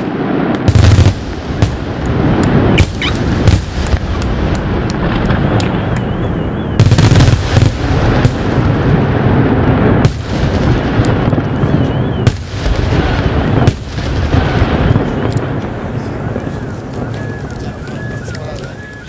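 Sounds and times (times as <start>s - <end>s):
continuous rumbling: 0.0s - 19.0s
fireworks booming: 0.0s - 19.0s.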